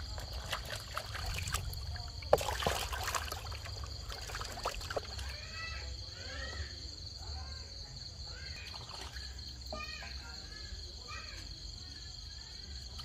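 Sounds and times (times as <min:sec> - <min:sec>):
water sloshing in a plastic basin: 0:00.0 - 0:06.6, 0:08.3 - 0:10.3, 0:12.8 - 0:13.0.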